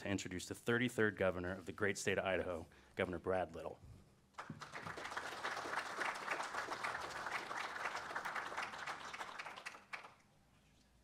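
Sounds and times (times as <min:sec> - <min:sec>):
audience applauding: 0:04.4 - 0:10.2.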